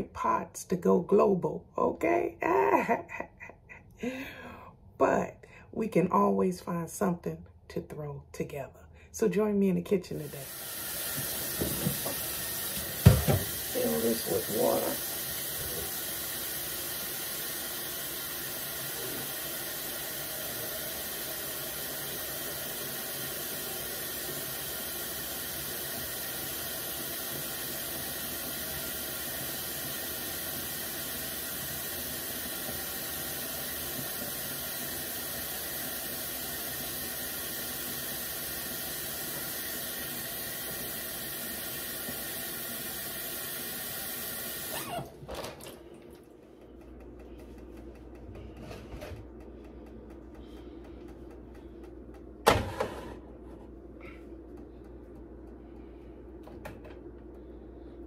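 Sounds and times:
faucet filling metal pot: 10.4 - 45.0.

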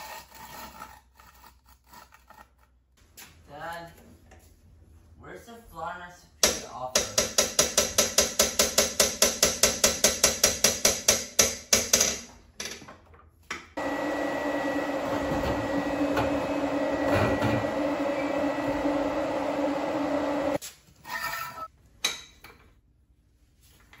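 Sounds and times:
mechanical whir with low hum: 13.8 - 20.6.

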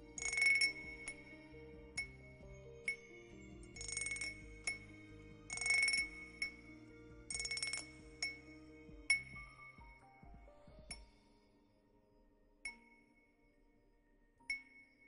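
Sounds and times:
soft background music: 0.0 - 15.0.

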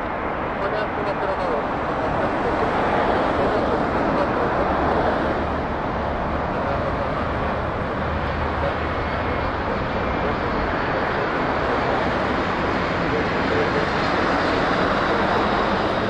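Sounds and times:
jet engines rushing: 0.0 - 16.0.

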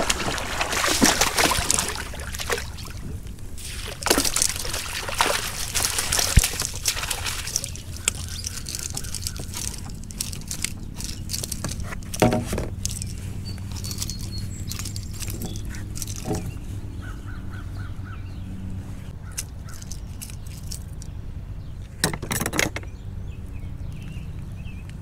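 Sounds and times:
landing net dipping in water: 0.0 - 16.6
fish thrashing and splashing: 0.0 - 16.7, 19.2 - 21.1.

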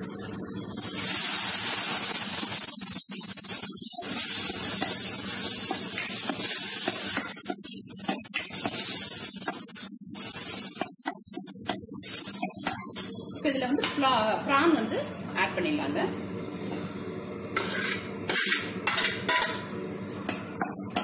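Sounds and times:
masala sizzling and hissing: 0.7 - 21.0
steel ladle scraping: 17.6 - 18.7.

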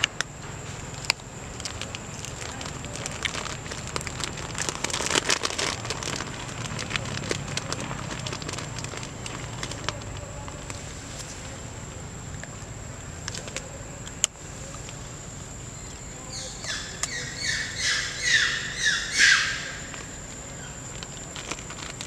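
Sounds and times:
bird calling high falling notes: 16.3 - 20.0.

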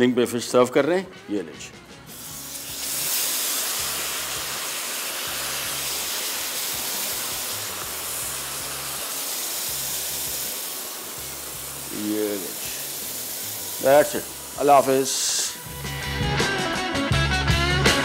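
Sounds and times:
food sizzling on hot plate: 2.1 - 16.4.

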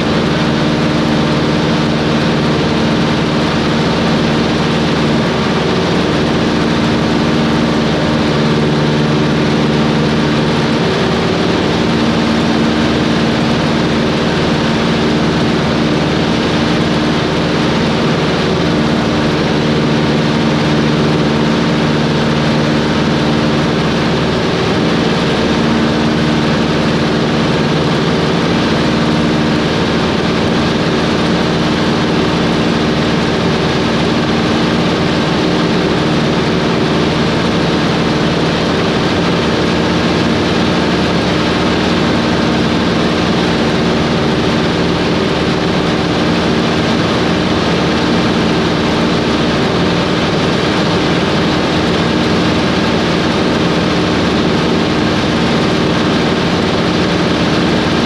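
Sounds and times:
propeller plane engine droning: 0.0 - 58.0.

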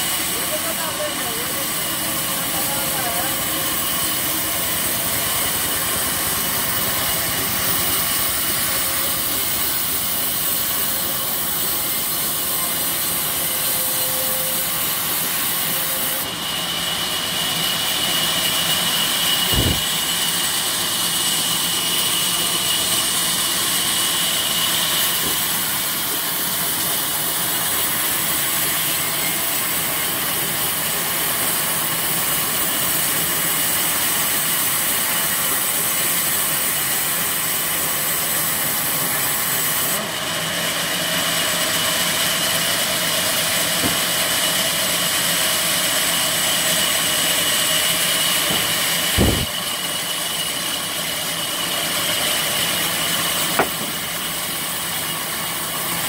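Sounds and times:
high blade whine: 0.0 - 28.1, 36.5 - 51.5
band saw mill cutting log: 0.0 - 56.0
knock: 53.6 - 54.0.

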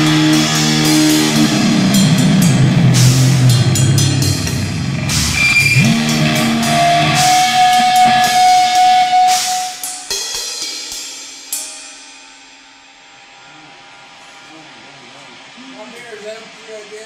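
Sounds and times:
electric guitar: 0.0 - 10.1
drum kit: 0.0 - 13.9
cymbal crashes: 0.0 - 16.5.

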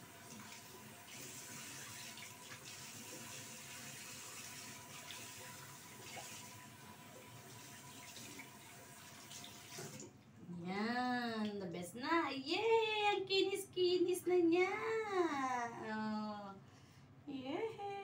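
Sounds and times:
water splashing into basin: 0.3 - 10.2.

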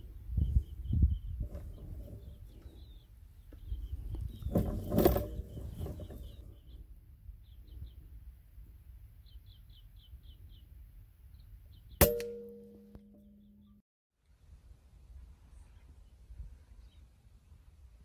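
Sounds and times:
low wind rumble: 0.0 - 9.2
small birds chirping: 0.0 - 12.0.

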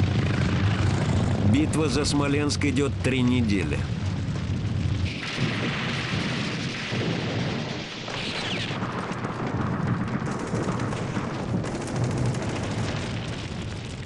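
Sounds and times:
explosions rumbling: 0.0 - 14.0
gunfire: 5.0 - 13.6.

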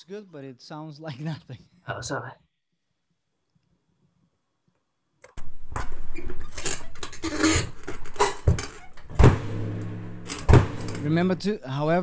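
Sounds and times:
pedal metallic clanking: 8.3 - 11.5
bass drum pedal hits: 9.1 - 12.0.

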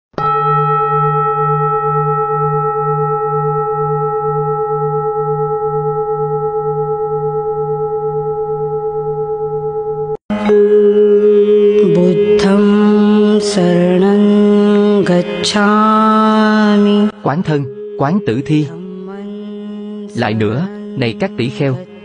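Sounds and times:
singing bowl ringing: 0.2 - 11.5.

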